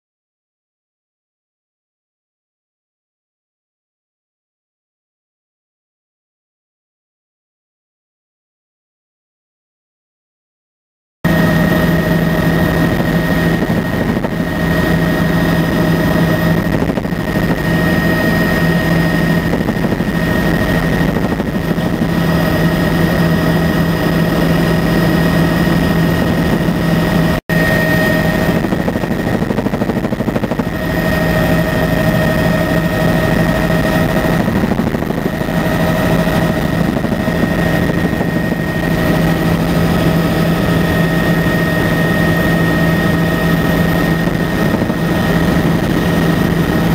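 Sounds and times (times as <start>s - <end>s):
constant engine whine: 11.3s - 46.9s
helicopter rotor and engine drone: 11.3s - 46.9s.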